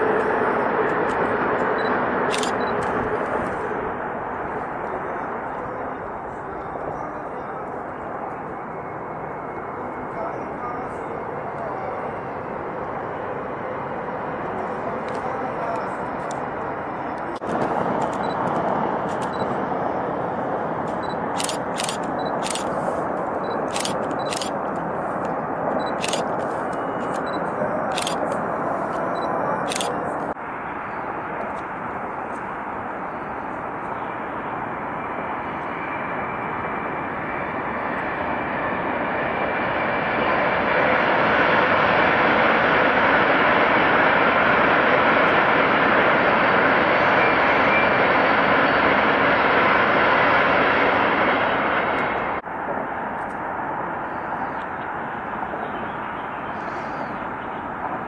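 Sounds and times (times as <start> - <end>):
sharp clicks: 2.3 - 3.0, 17.4 - 19.5, 20.9 - 22.7, 23.5 - 28.4, 29.2 - 29.9
train rushing past: 11.8 - 54.0.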